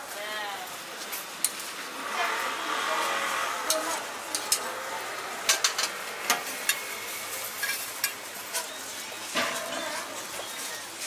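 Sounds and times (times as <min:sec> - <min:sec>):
frying hiss on griddle: 0:00.0 - 0:11.0
metal utensils tapping hot plate: 0:03.7 - 0:04.7, 0:05.5 - 0:06.9, 0:07.6 - 0:10.0.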